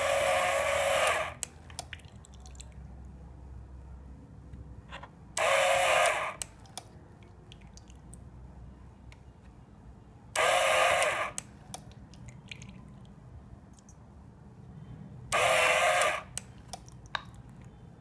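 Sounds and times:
water pump spraying: 0.0 - 1.4, 5.4 - 6.4, 10.4 - 11.4, 15.3 - 16.3.

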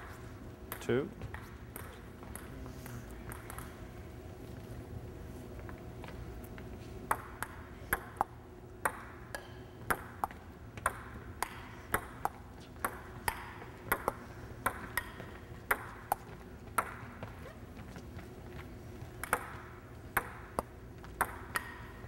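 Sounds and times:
table tennis ball clicking: 20.2 - 22.0.

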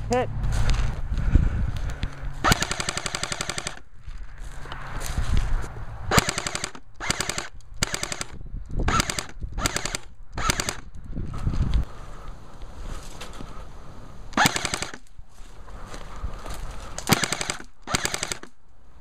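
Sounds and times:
airsoft rifle automatic fire: 2.4 - 3.8, 6.1 - 10.8, 14.4 - 15.1, 17.1 - 18.6.

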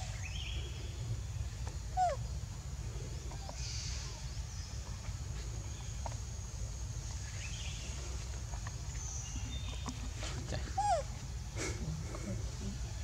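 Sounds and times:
low rumble with faint hiss: 0.0 - 13.0.

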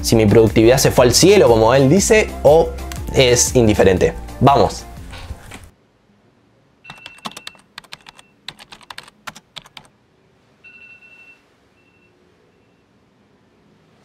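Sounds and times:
keyboard typing clicks: 6.9 - 9.9
short electronic beep: 10.6 - 12.9.

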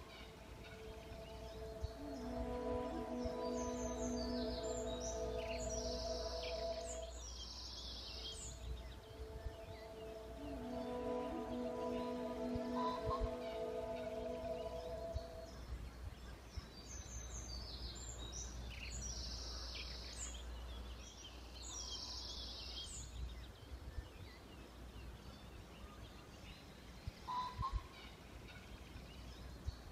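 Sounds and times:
soft music: 0.0 - 15.8
birds chirping: 0.0 - 29.9.

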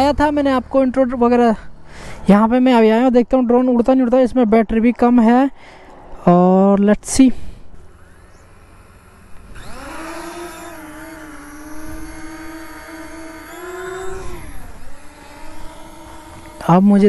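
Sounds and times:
drone propellers whining: 7.4 - 17.0.

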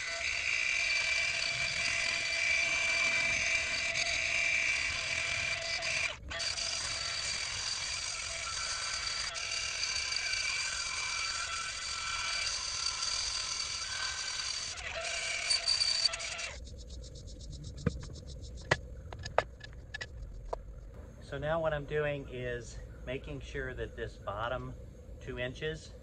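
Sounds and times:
angle grinder on wood: 0.0 - 16.6.

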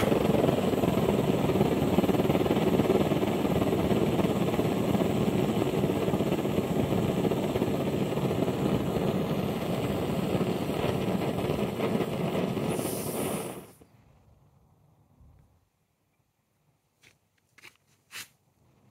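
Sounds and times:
blowtorch burning with loud rush: 0.0 - 13.9
pressure valve hissing: 12.6 - 13.8.

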